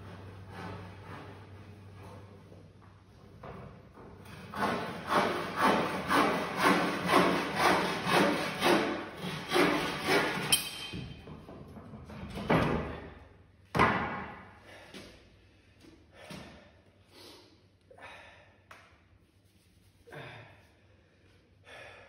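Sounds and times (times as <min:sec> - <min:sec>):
bow saw cutting wood: 0:00.0 - 0:02.0, 0:04.3 - 0:10.6.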